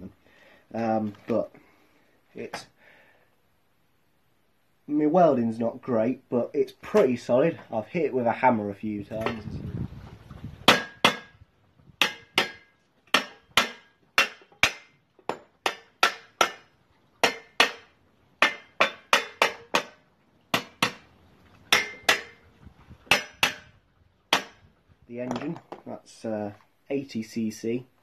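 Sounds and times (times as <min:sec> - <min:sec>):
hammer striking steel frame: 0:10.7 - 0:11.4, 0:12.0 - 0:21.0, 0:21.7 - 0:22.4, 0:23.1 - 0:24.7.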